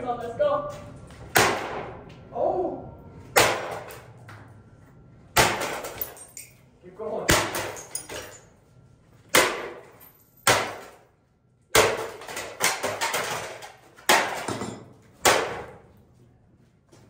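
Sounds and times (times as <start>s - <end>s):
clatter of breaking parts: 5.4s - 6.7s, 7.3s - 8.6s, 12.0s - 15.0s.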